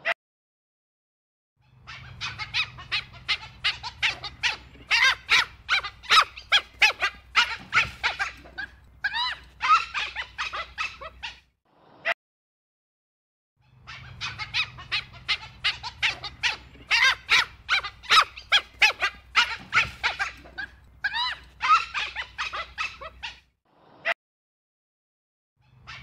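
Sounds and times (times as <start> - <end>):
wild dog squeaking calls: 1.7 - 11.5, 13.6 - 23.5, 25.6 - 26.0.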